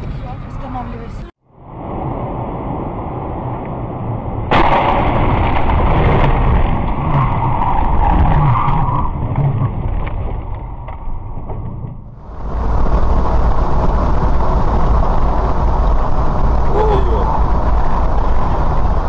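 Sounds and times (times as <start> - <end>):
car road noise on wet asphalt: 12.0 - 19.0
loud rushing noise: 12.2 - 19.0.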